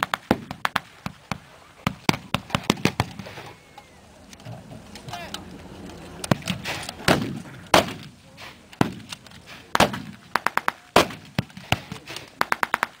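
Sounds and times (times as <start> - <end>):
blank rifle shots: 6.3 - 8.1, 9.7 - 13.0.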